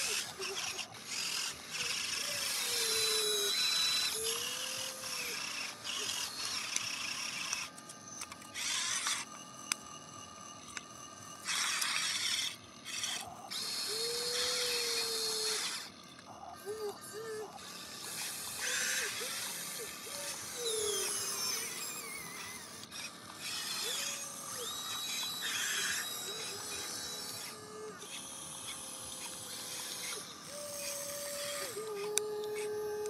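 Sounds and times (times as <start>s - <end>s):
thin high whine: 0.0s - 22.7s
toy electric motors whirring: 0.0s - 33.0s.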